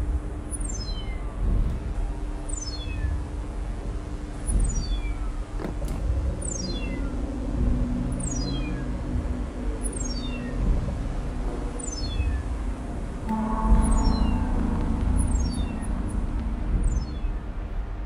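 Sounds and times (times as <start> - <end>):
low steady hum: 0.0 - 18.0
steady electronic tones: 13.2 - 18.0.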